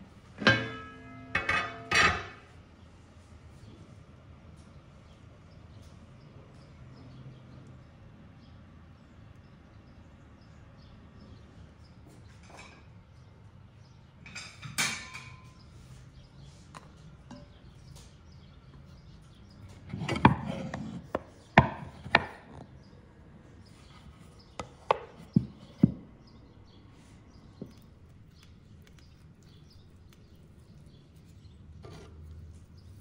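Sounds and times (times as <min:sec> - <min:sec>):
wooden bowls clattering: 0:00.4 - 0:02.4
wooden knocks: 0:24.6 - 0:26.2.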